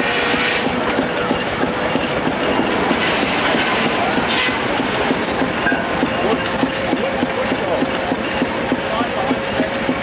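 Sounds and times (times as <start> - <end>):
belt-driven machinery rattling: 0.6 - 10.0.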